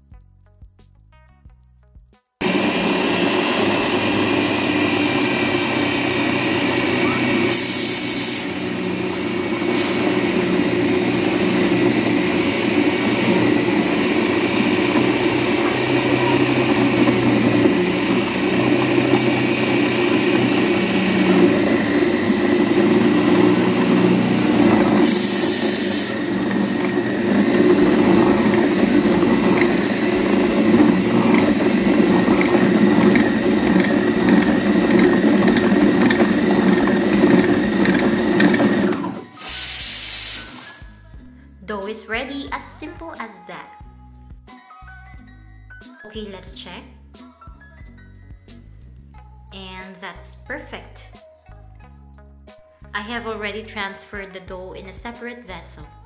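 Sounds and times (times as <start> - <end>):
food processor motor running: 2.4 - 40.6
short hiss: 39.4 - 41.0.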